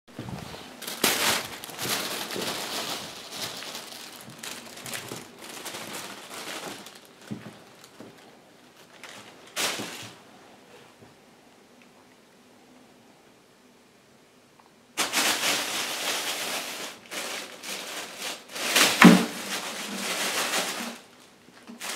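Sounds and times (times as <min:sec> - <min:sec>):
bag dragged across tile floor: 0:00.1 - 0:07.0
plastic bag crinkling and rustling: 0:00.1 - 0:10.2, 0:15.0 - 0:21.9.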